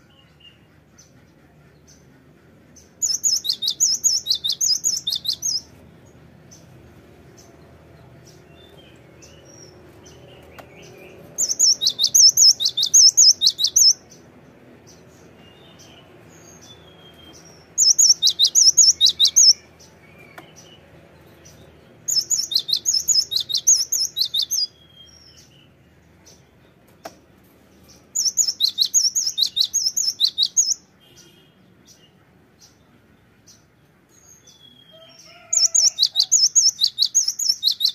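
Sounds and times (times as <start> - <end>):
bird singing rapid high notes: 3.0 - 5.7, 8.6 - 14.2, 15.2 - 20.8, 22.0 - 25.5, 28.0 - 31.6, 35.6 - 37.9.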